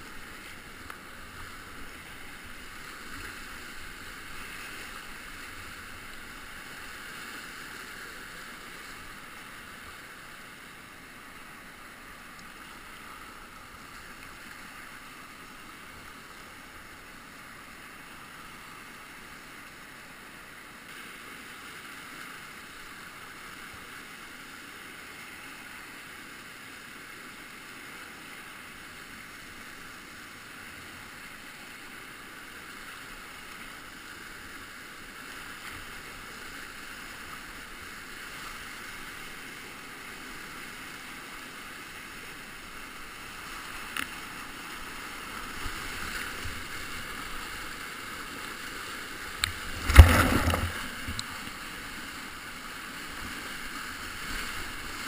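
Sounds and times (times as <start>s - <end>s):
whitewater rapids rushing: 35.9s - 55.0s
hit on the microphone: 49.8s - 51.2s.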